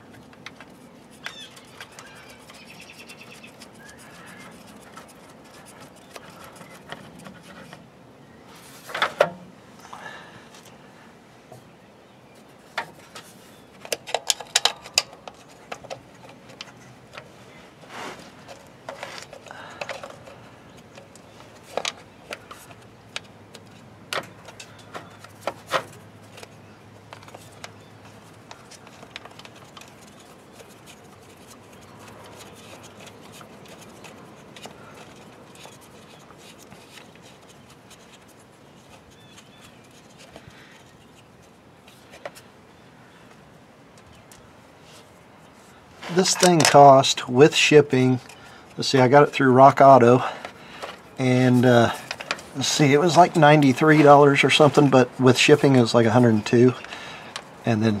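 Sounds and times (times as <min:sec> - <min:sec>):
plastic and metal parts clicking: 0:13.8 - 0:17.3, 0:18.5 - 0:40.9, 0:52.0 - 0:52.5.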